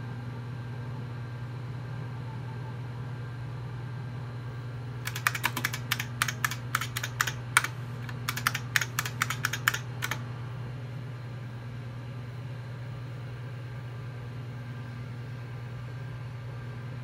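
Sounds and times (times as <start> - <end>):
keyboard key clicks: 5.0 - 10.2
computer humming: 5.0 - 10.3.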